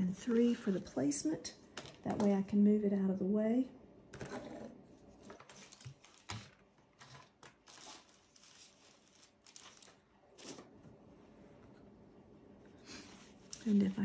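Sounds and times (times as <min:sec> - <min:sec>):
paper rustling: 0:05.0 - 0:10.7, 0:13.0 - 0:14.0.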